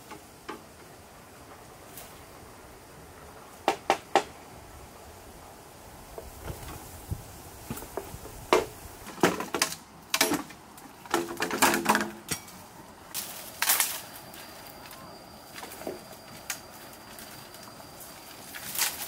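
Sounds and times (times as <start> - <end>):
leafy bamboo stems rustling: 0.0 - 19.0
bamboo poles knocking together: 7.7 - 12.6.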